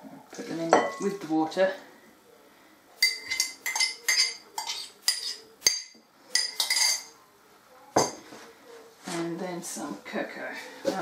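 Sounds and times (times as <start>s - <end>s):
metal spoon clinking on dishes: 0.6s - 1.2s, 3.0s - 7.2s.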